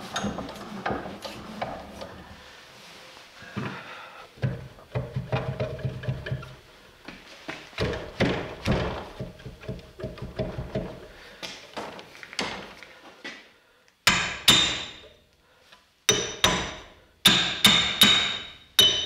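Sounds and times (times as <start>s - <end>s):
hammer ringing on axe head: 16.1s - 19.0s.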